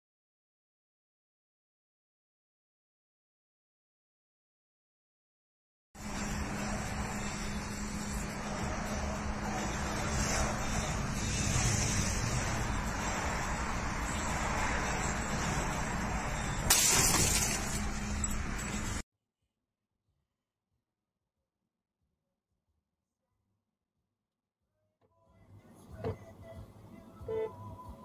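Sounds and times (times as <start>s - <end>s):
road and engine noise in car: 6.0s - 19.0s, 25.4s - 28.0s.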